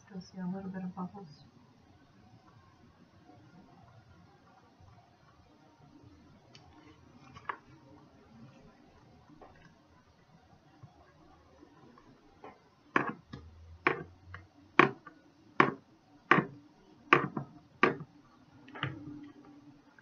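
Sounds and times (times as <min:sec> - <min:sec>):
spatula knocking on plastic bowl: 0:13.0 - 0:14.1, 0:14.8 - 0:15.0, 0:17.1 - 0:18.0.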